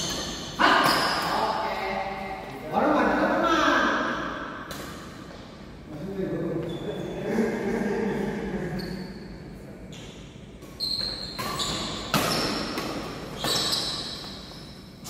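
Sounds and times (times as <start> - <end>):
racket hitting shuttlecock: 11.3 - 14.4.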